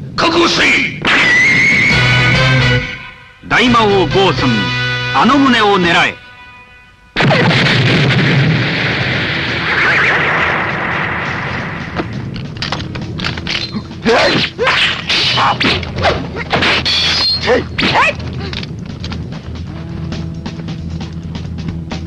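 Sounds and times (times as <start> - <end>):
explosion rumble: 7.2 - 13.2
sword blades clashing: 13.6 - 18.2
fighters shouting and crying: 13.7 - 15.8, 17.4 - 18.6.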